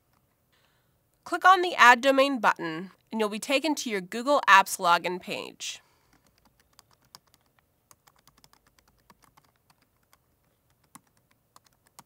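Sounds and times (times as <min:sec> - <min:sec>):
faint keyboard typing: 0:06.0 - 0:12.0.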